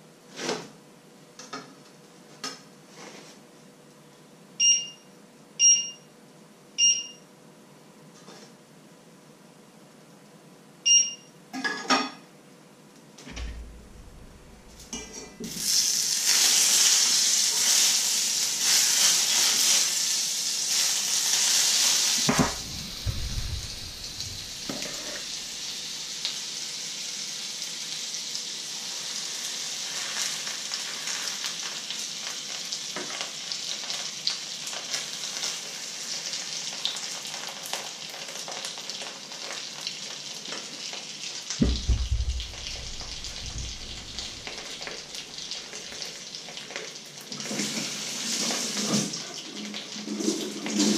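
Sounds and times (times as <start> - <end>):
fat sizzling in frying pan: 13.5 - 50.9.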